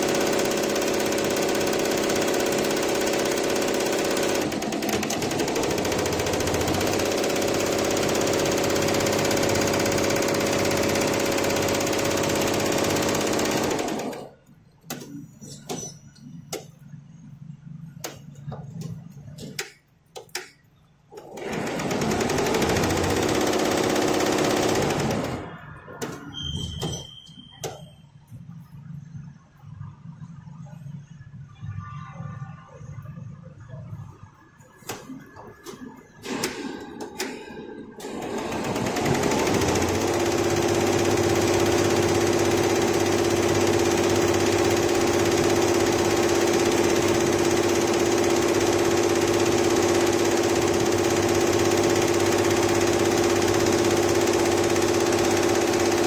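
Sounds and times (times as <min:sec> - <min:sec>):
embroidery machine stitching rattle: 0:00.0 - 0:14.4, 0:21.1 - 0:25.5, 0:38.0 - 0:56.0.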